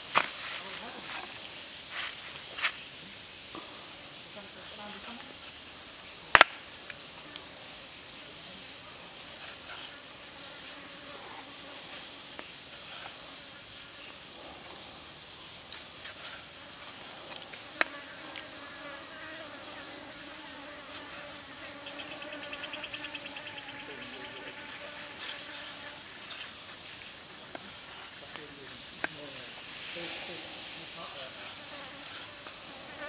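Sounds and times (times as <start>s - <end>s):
fast pulsing insect chirp: 0.0s - 33.0s
insects buzzing: 0.0s - 33.0s.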